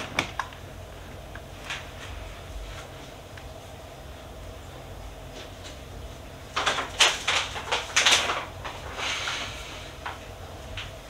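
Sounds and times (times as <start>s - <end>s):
plastic packets rustling: 6.5s - 10.2s.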